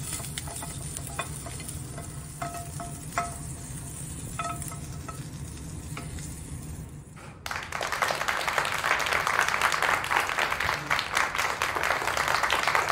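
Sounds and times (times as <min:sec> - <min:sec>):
tongs clicking against a pan: 0:00.0 - 0:06.3
dense applause: 0:07.4 - 0:12.9.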